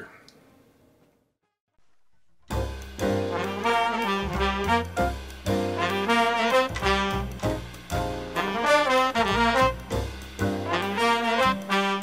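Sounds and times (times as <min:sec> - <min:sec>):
jazz music led by horns: 0:02.5 - 0:12.0.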